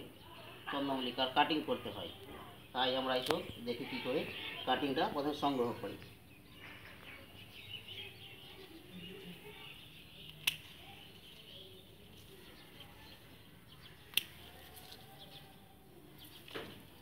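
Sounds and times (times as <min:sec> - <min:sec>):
faint bird chirping: 0:00.0 - 0:17.0
scissors snipping: 0:10.2 - 0:11.0, 0:14.0 - 0:15.1.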